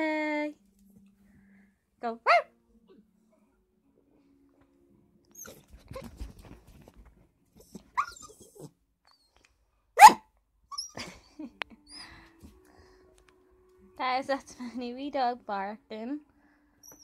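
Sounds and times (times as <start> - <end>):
puppy barking: 2.2 - 2.5, 10.0 - 10.3
soft rustling and shuffling: 5.6 - 7.9.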